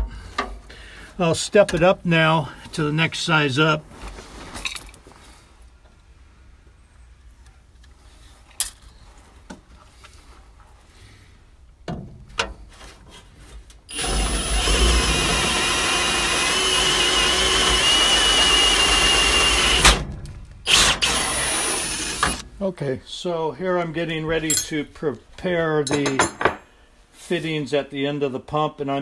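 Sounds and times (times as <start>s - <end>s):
drill boring into steel: 13.9s - 20.0s, 20.6s - 22.4s.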